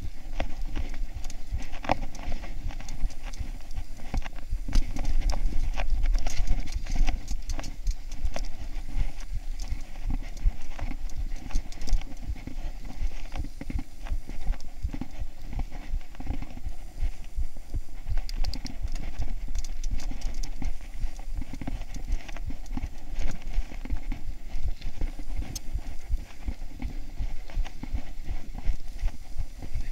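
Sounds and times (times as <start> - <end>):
bike rattling over stony trail: 0.0 - 29.9
steady low rumble: 0.0 - 29.9.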